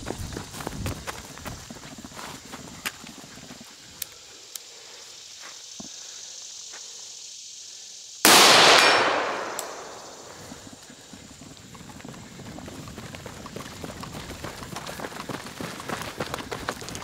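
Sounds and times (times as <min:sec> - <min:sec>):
footsteps of people running: 0:00.0 - 0:03.9, 0:10.4 - 0:17.0
rifle shot with echo: 0:08.3 - 0:10.4.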